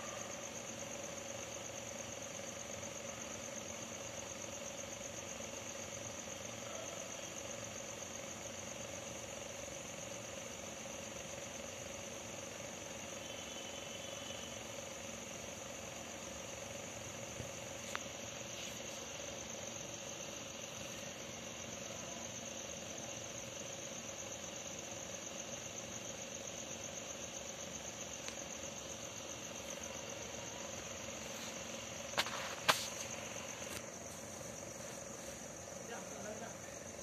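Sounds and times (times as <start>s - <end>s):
crickets trilling: 0.0s - 37.0s.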